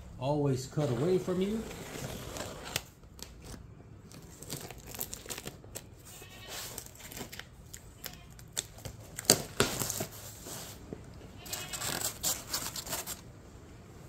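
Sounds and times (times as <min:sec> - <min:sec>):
knife cutting packaging: 0:01.1 - 0:10.7, 0:11.4 - 0:13.2
plastic wrap crinkling and tearing: 0:01.4 - 0:10.4, 0:11.4 - 0:13.3.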